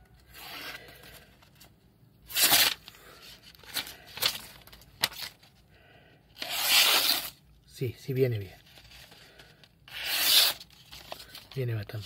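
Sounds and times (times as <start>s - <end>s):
knife slicing through paper: 2.3s - 2.8s, 6.4s - 7.4s, 9.9s - 11.2s
paper rustling and tearing: 2.3s - 5.4s, 6.4s - 7.4s, 8.7s - 11.6s.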